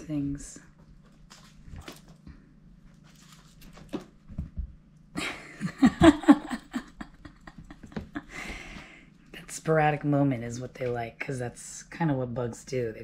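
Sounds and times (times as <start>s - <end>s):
cats pouncing taps and scuffs: 3.6s - 4.8s.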